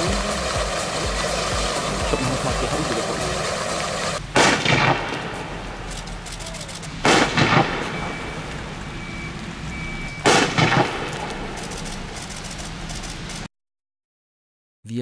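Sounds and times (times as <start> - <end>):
firework rockets bursting: 0.0 - 13.4.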